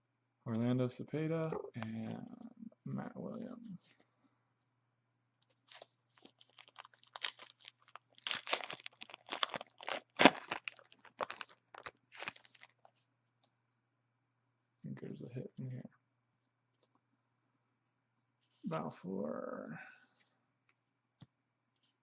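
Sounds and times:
wrapper tearing and crinkling: 5.6s - 12.8s.

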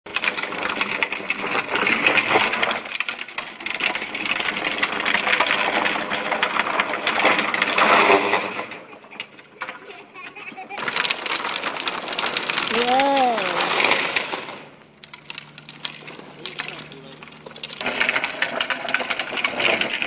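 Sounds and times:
plastic wheels scraping on asphalt: 0.1s - 20.0s.

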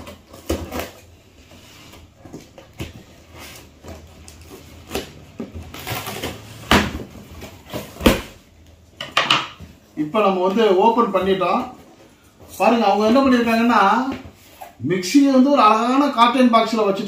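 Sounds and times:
scissors cutting cardboard and tape: 0.0s - 1.1s, 2.5s - 8.3s
cardboard rustling: 0.0s - 8.9s.

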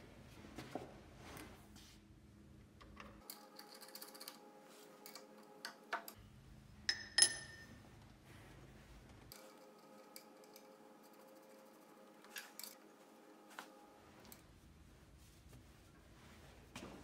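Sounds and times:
sharp metallic clink: 6.9s - 7.7s.

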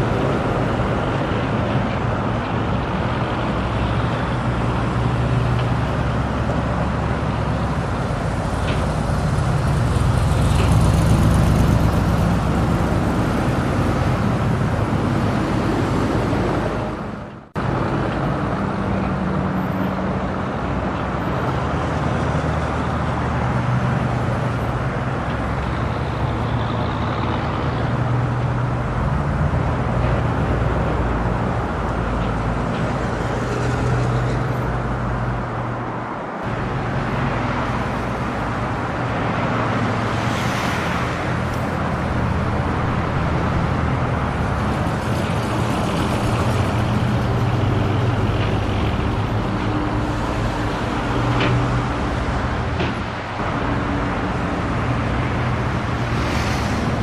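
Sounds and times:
street traffic engines: 0.0s - 57.0s
vehicle passing with hiss: 36.5s - 57.0s.

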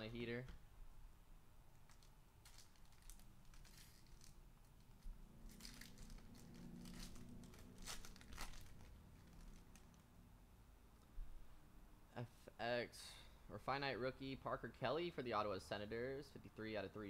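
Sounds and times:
foil wrapper tearing and crinkling: 1.8s - 10.0s.

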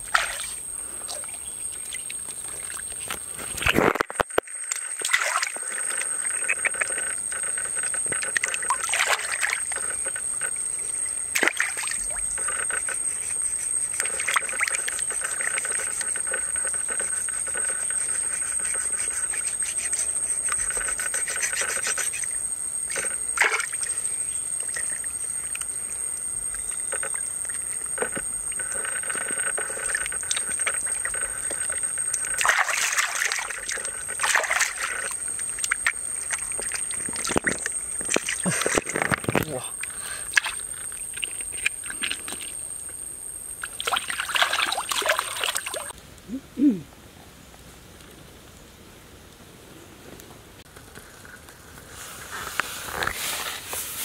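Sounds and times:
water splashing and sloshing: 0.0s - 22.2s, 22.8s - 24.0s, 26.7s - 42.9s, 43.6s - 46.0s.

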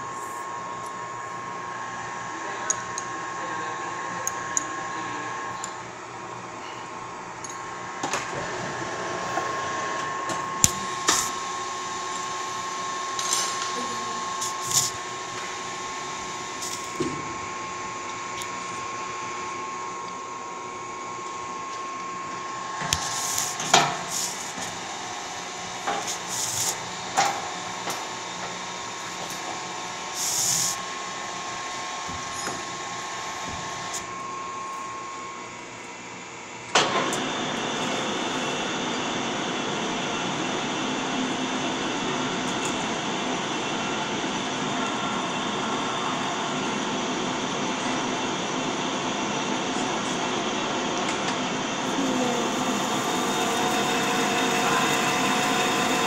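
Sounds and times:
machine shop hum: 0.0s - 56.0s
lathe cutting metal: 51.8s - 56.0s.

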